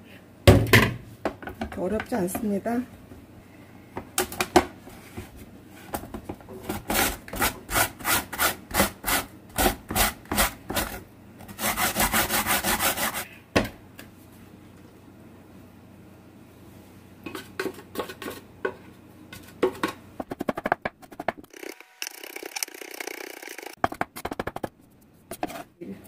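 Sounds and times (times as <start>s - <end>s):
potato rasping on grater: 11.5s - 13.3s.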